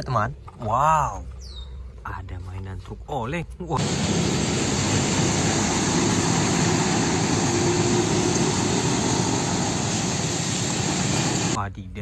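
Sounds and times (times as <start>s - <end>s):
truck diesel engine running: 3.8s - 11.6s
tyres on wet road: 3.8s - 11.6s.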